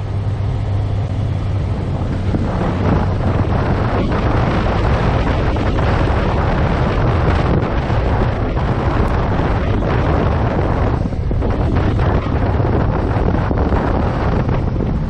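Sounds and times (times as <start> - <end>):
motorcycle engine at speed: 0.0 - 15.0
wind buffeting microphone: 0.0 - 15.0.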